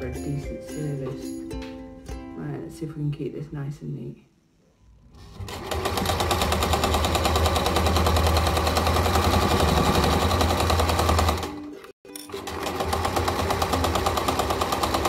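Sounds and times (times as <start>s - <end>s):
sewing machine stitching: 5.0s - 11.6s, 12.2s - 15.0s.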